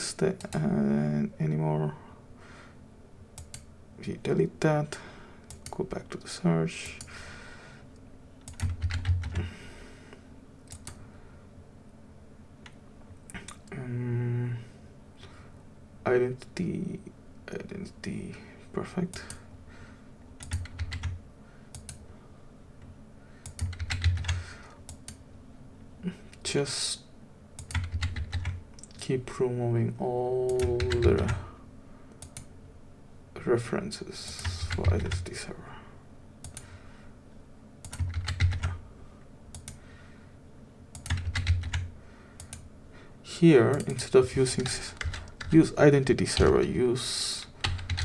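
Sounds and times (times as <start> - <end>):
computer keyboard keystrokes: 3.4 - 3.7, 5.5 - 5.8, 8.4 - 9.4, 10.7 - 11.0, 20.4 - 22.0, 23.4 - 25.2, 27.6 - 29.0, 30.5 - 31.4, 32.1 - 32.5, 36.4 - 36.7, 37.8 - 38.7, 39.5 - 39.8, 40.9 - 42.6, 43.7 - 45.6, 47.4 - 48.0.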